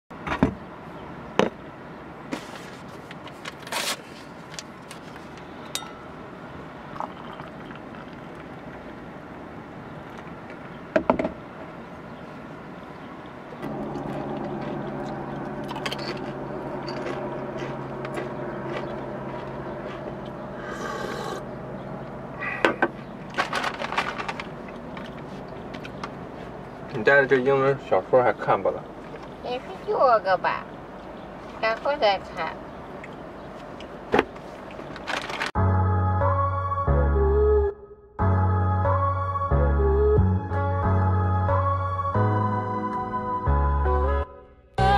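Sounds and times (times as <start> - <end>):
low steady hum: 4.5 - 34.0.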